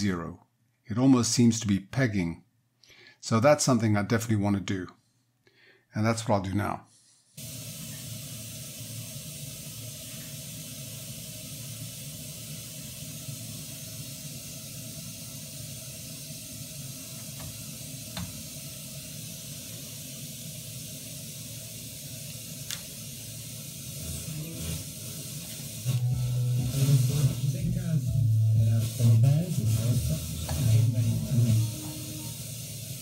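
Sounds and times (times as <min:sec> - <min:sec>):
radio static hiss: 0:07.4 - 0:33.0
low hum: 0:25.9 - 0:32.4.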